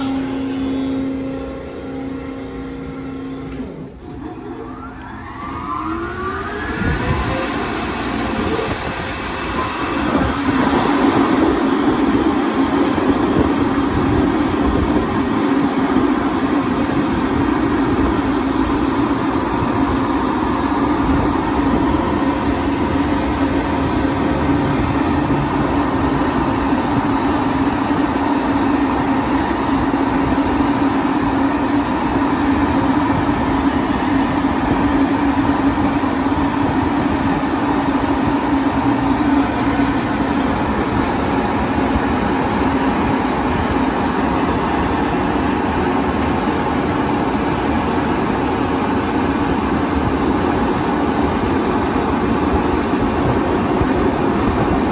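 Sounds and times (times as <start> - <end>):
dryer blowers rushing air: 0.0 - 54.9.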